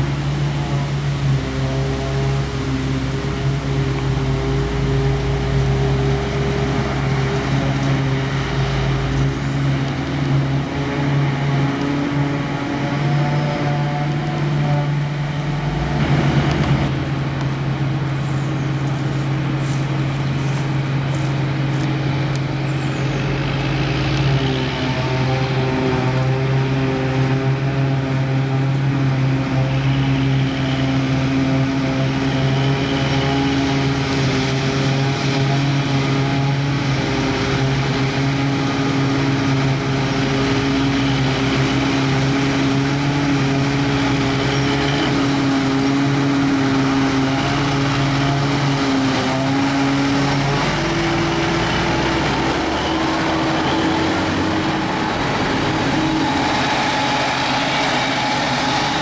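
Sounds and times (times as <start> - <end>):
forage harvester engine drone: 0.0 - 59.0
machine rush: 40.4 - 59.0.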